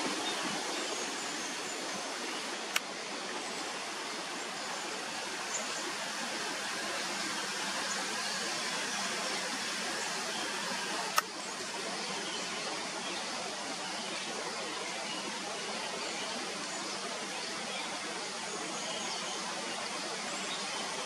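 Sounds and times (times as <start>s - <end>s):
outdoor background hiss: 0.0s - 21.0s
sharp click: 11.1s - 11.4s.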